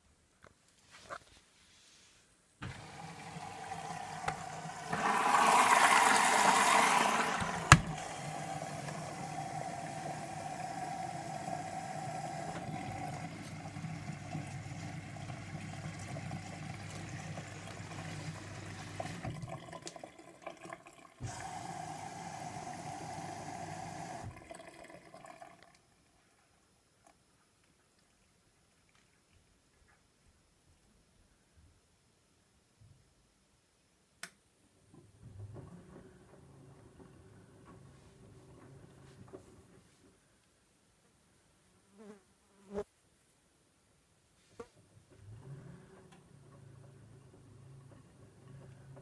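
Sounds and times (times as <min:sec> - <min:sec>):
water rushing into washing machine: 0:02.6 - 0:25.8
washing machine click: 0:07.2 - 0:08.1.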